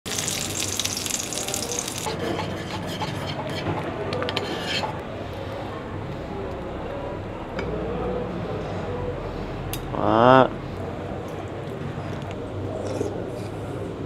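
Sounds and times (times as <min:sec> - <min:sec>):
kitchen clicks and scraping: 0:01.8 - 0:05.0.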